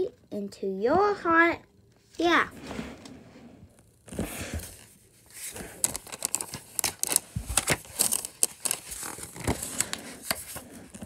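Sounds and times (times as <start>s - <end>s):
paper rustling and crinkling: 4.1s - 11.0s.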